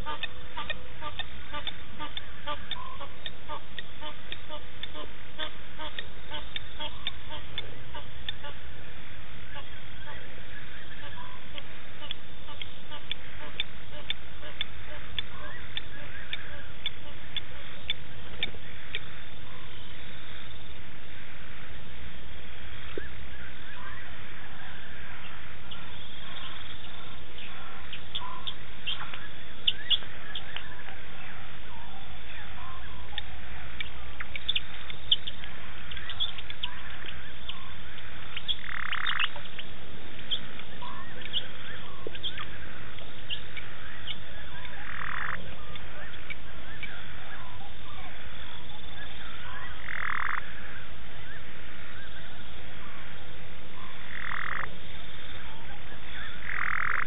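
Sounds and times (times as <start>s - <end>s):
long noisy frog call: 0.0s - 21.7s, 34.4s - 57.0s
frogs chirping: 0.0s - 57.0s.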